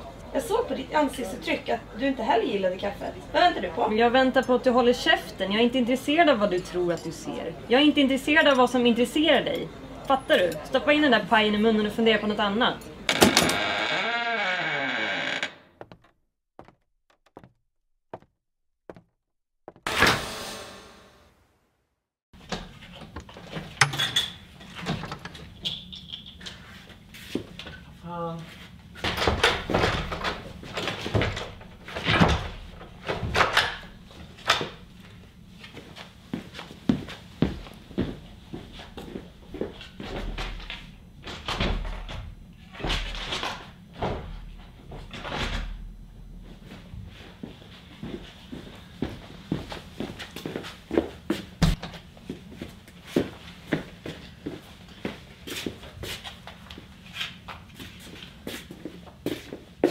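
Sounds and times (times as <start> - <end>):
door opening and shutting: 13.1 - 16.2, 23.7 - 25.4.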